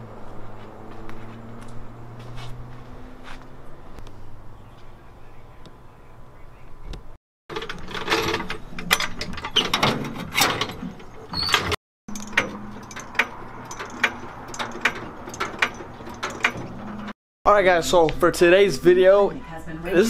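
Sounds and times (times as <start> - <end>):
metallic clicking and clanking: 7.5 - 17.2
brief squeak: 11.3 - 11.8.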